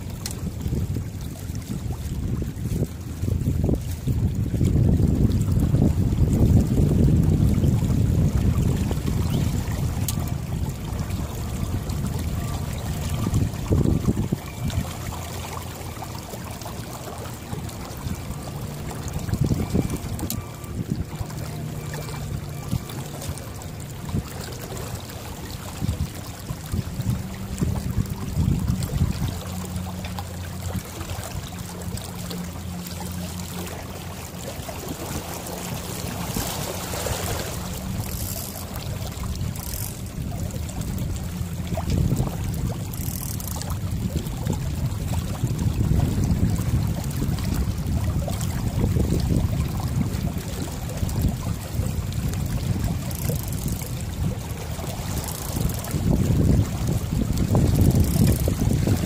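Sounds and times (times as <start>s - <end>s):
water washing: 0.0s - 59.0s
wind buffeting microphone: 0.0s - 59.0s.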